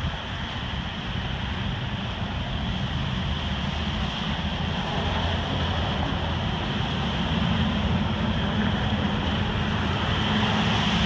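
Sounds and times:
truck engines rumbling: 0.0 - 11.0
tyres on wet road: 0.0 - 11.0.

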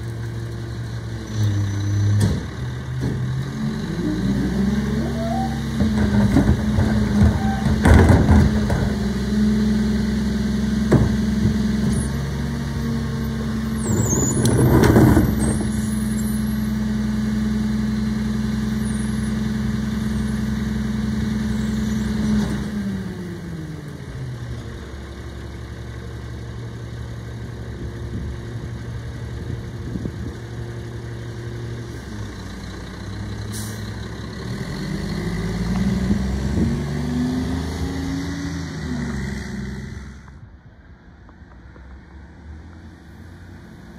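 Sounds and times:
diesel truck engine revving: 0.9 - 24.3, 30.8 - 40.5.

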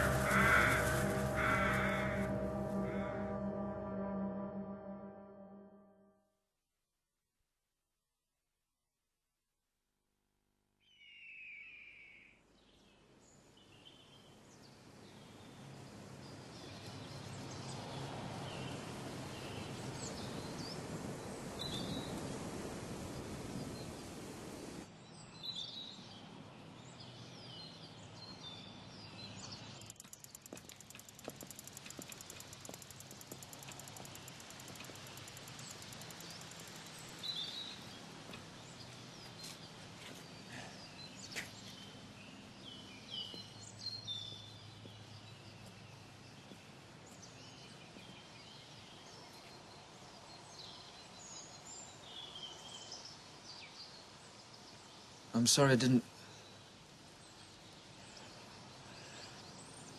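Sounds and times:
birds chirping: 0.0 - 3.9, 26.9 - 59.9
rushing noise: 0.0 - 5.6.

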